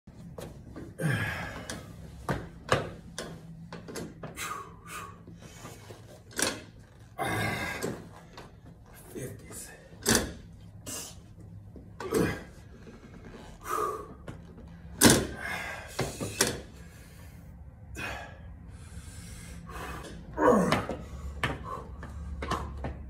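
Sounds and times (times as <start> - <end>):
effortful breaths: 0.9 - 2.3, 4.3 - 6.3, 7.0 - 8.9, 10.7 - 23.0
dumbbells thumping: 1.0 - 4.4, 15.0 - 16.7.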